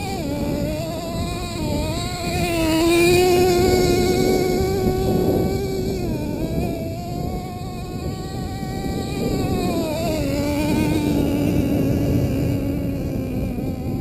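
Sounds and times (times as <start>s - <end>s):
small two-stroke engine revving: 0.0s - 14.0s.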